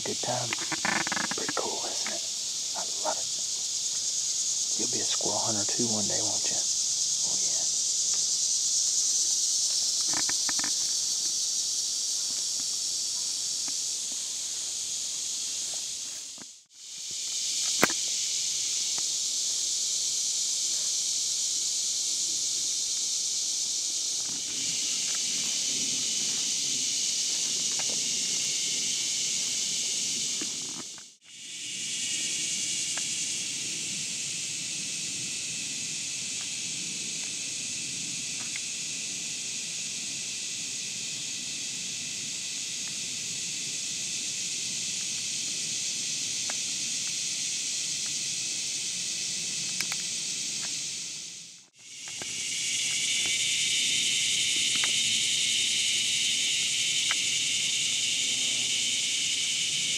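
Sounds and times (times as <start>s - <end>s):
insect chorus drone: 0.0s - 59.9s
faint ticks: 9.7s - 11.4s.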